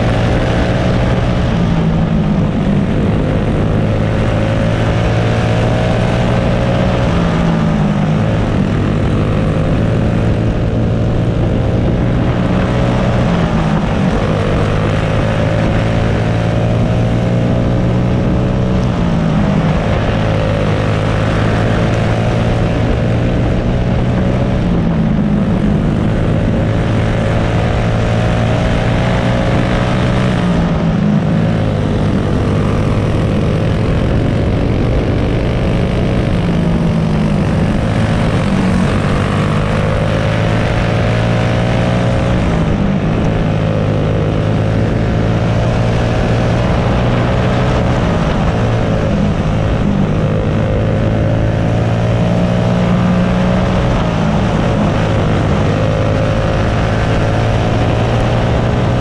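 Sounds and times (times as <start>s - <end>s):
kart engine running hard: 0.0s - 59.0s.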